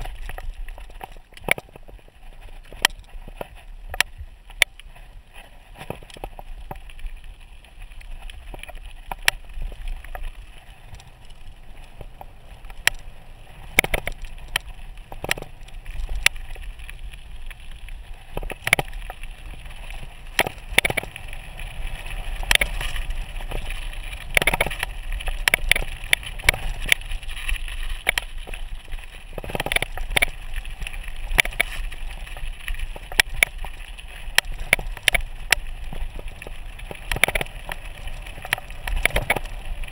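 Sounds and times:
tyres crunching over gravel: 0.0 - 39.9
bike rattling and knocking: 20.3 - 21.2, 32.8 - 39.9.

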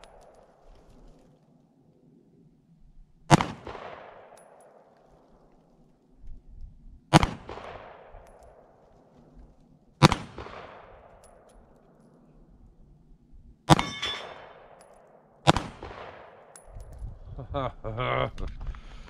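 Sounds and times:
pistol shots with echo: 3.3 - 4.9, 7.1 - 8.9, 10.0 - 11.6, 13.7 - 16.8
metallic ring: 13.8 - 15.0.

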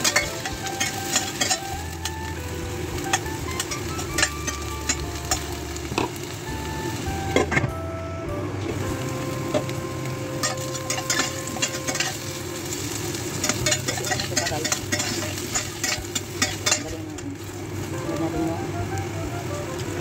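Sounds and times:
metal spatula scraping pan: 0.0 - 2.2, 10.4 - 12.3, 13.4 - 17.0
carrots sizzling in oil: 0.0 - 7.8, 8.5 - 20.0.

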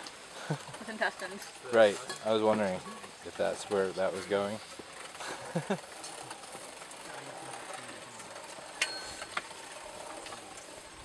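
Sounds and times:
sharp metallic clinks: 8.8 - 9.4.

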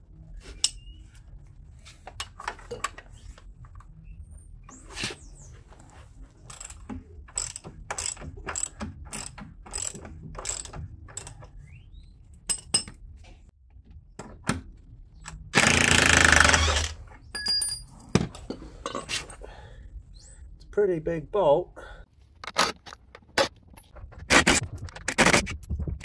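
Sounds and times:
cordless impact driver running: 15.6 - 17.0
metal clinks: 17.3 - 18.0.

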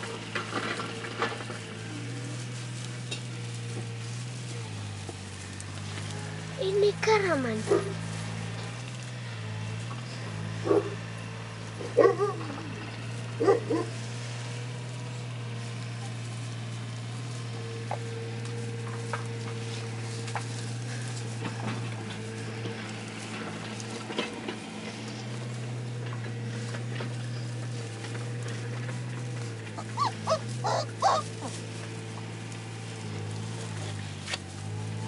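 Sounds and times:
puppies crying: 29.6 - 31.8.

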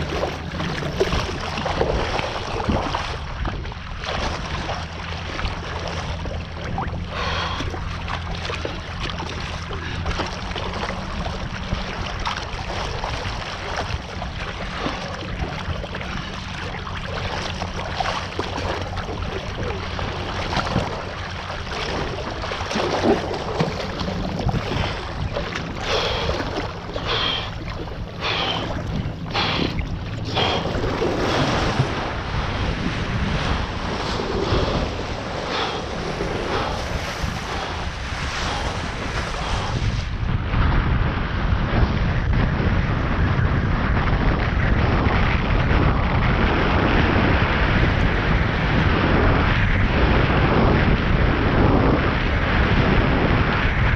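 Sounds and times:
water rushing past board: 0.0 - 40.3
water splashes: 0.0 - 40.3
wind rumbling on microphone: 0.0 - 53.9.

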